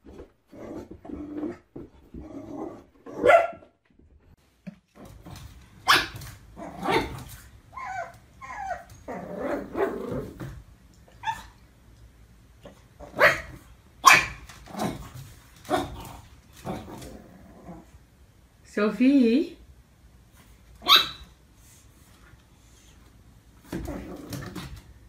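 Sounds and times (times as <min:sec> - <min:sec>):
dog growling: 0:00.5 - 0:03.2, 0:09.1 - 0:10.5, 0:14.7 - 0:18.0, 0:23.7 - 0:24.7
puppy barking: 0:03.2 - 0:03.7, 0:05.8 - 0:06.2, 0:13.1 - 0:14.4, 0:20.8 - 0:21.3
puppy yipping: 0:05.9 - 0:06.2, 0:07.8 - 0:08.9, 0:11.2 - 0:11.6, 0:20.8 - 0:21.3.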